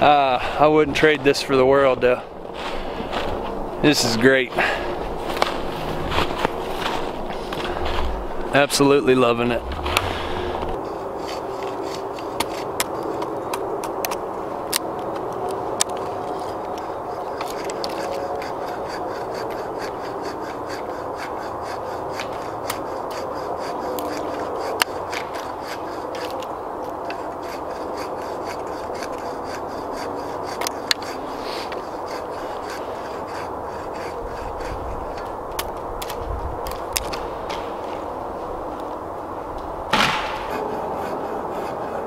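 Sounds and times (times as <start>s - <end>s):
knife scraping wooden stick: 9.8s - 38.0s, 40.1s - 42.0s.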